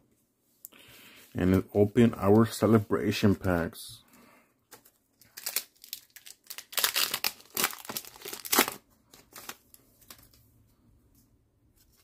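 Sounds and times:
foil wrapper tearing and crinkling: 0:05.2 - 0:09.7.

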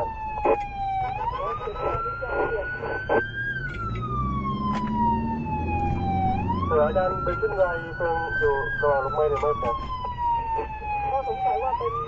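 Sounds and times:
electronic siren wailing: 0:00.0 - 0:12.0
engine and traffic rumble: 0:00.0 - 0:12.0.

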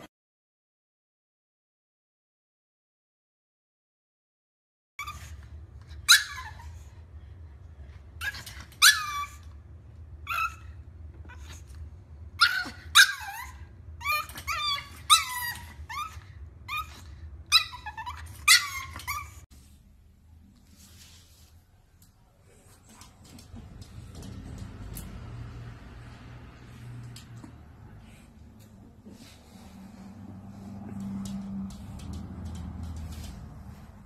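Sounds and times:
puppy yipping: 0:05.0 - 0:06.8, 0:08.2 - 0:09.5, 0:10.2 - 0:11.7, 0:12.4 - 0:19.4.

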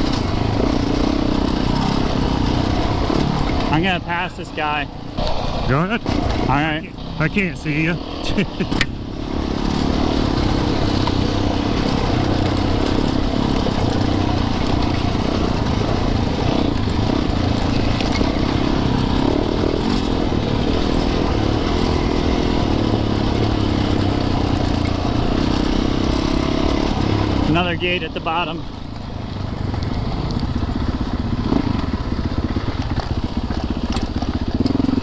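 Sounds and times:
dirt bike engine running: 0:00.0 - 0:35.0.

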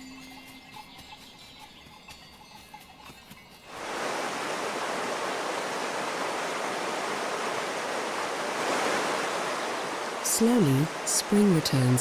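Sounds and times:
stream rushing over rocks: 0:03.7 - 0:12.0.

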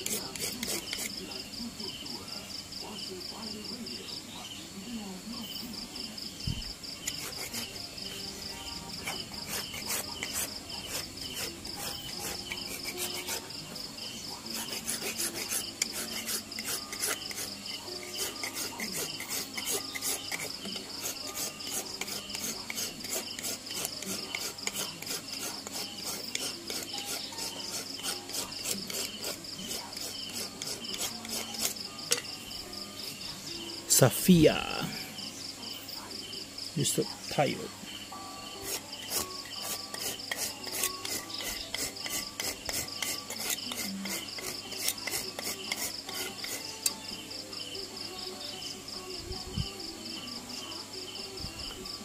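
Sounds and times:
carving tool scraping wood: 0:00.0 - 0:01.2, 0:06.9 - 0:33.3, 0:38.5 - 0:46.9
insects chirping: 0:00.0 - 0:52.0.

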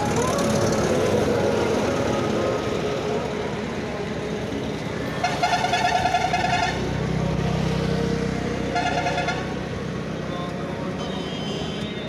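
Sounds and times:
vehicle horn honk: 0:08.7 - 0:09.5, 0:11.0 - 0:12.0.

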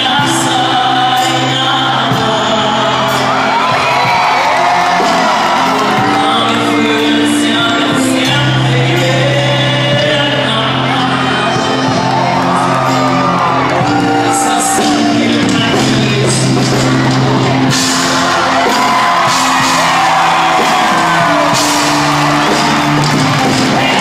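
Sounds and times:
band accompaniment: 0:00.0 - 0:24.0
audience whooping and cheering: 0:02.8 - 0:08.0, 0:11.0 - 0:24.0.

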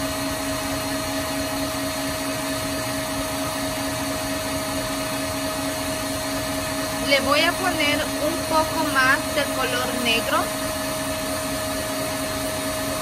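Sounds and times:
stand mixer motor whirring: 0:00.0 - 0:13.0.

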